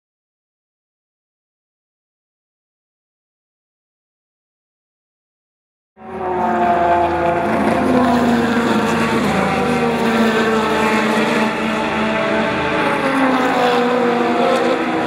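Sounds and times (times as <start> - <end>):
engine running: 6.0 - 15.0.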